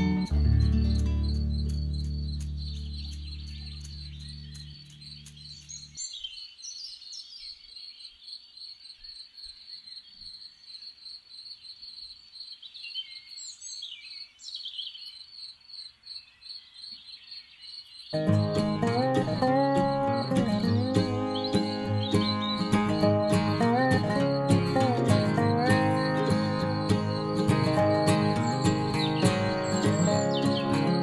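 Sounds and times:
acoustic guitar notes: 0:00.0 - 0:05.6, 0:18.2 - 0:31.0
crickets chirping: 0:00.0 - 0:06.6, 0:15.0 - 0:31.0
songbird gliding calls: 0:18.2 - 0:31.0.

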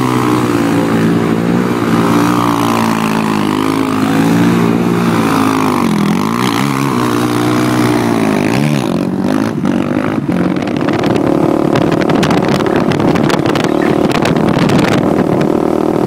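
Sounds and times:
quad engine revving: 0:00.0 - 0:16.0
quad engines running steadily: 0:00.0 - 0:16.0
wind buffeting microphone: 0:00.0 - 0:16.0.

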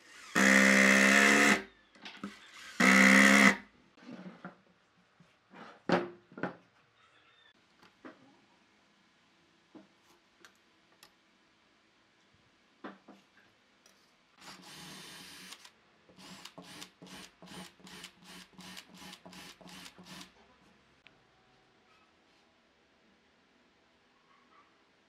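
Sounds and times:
cordless drill boring into wood: 0:00.0 - 0:01.6, 0:02.3 - 0:03.6, 0:14.4 - 0:20.3.

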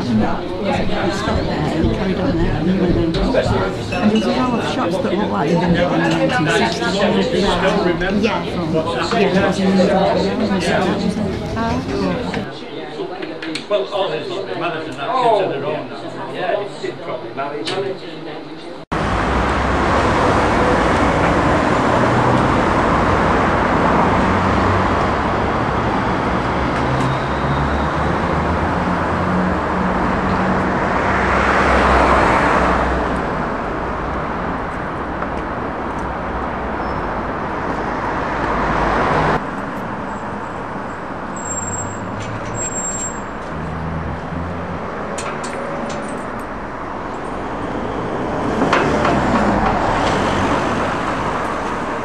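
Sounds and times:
street traffic: 0:00.0 - 0:12.9, 0:18.9 - 0:52.0
vehicle passing: 0:28.0 - 0:34.6, 0:43.3 - 0:52.0.

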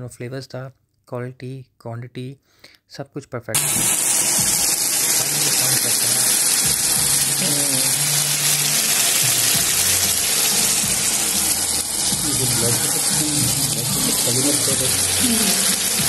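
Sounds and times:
food sizzling on hot platter: 0:03.6 - 0:16.0.

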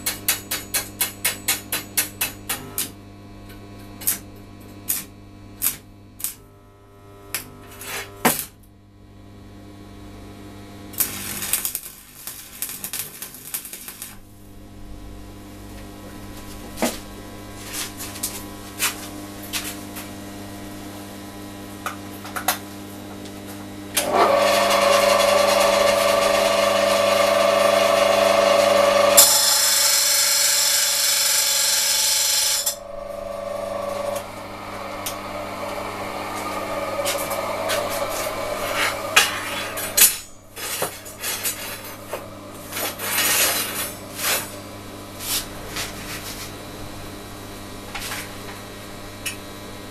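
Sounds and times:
taps on metal: 0:00.0 - 0:02.9
electric power tool working metal: 0:10.9 - 0:14.2, 0:24.0 - 0:44.6
low steady hum: 0:32.6 - 0:47.8
metal rods scraping and clinking: 0:37.7 - 0:42.1.

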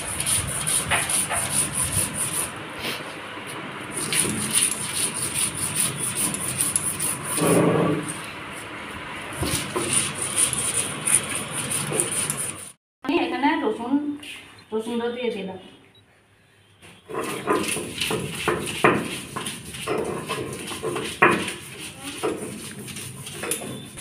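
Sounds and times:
stone roller grinding on stone: 0:00.0 - 0:02.5, 0:03.9 - 0:08.2, 0:09.4 - 0:12.8, 0:17.1 - 0:24.0.

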